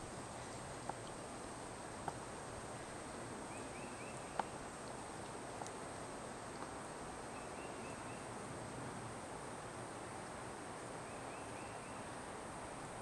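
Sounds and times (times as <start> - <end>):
bird singing: 3.5 - 4.5, 7.3 - 8.2.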